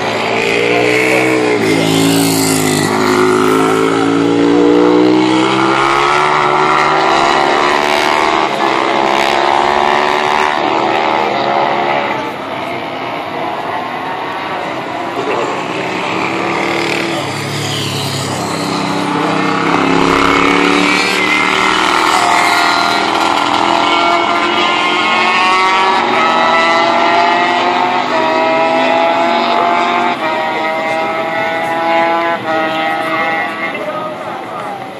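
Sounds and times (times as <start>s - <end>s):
racing motorcycle engines revving: 0.0s - 34.9s.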